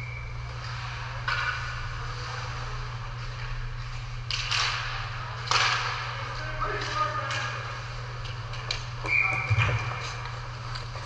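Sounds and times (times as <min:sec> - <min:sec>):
low hum: 0:00.0 - 0:06.9
sticks and puck clacking: 0:00.6 - 0:02.0, 0:03.1 - 0:11.0.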